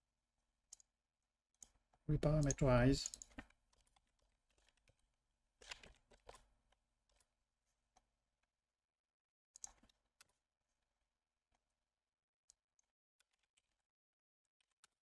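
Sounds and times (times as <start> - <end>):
keyboard and mouse clicks: 1.6 - 5.0, 5.6 - 7.3, 9.6 - 10.4.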